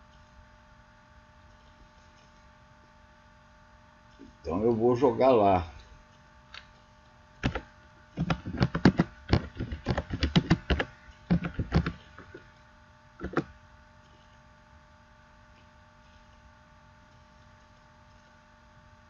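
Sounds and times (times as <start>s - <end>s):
keyboard key clicks: 8.2s - 12.0s, 13.2s - 13.5s.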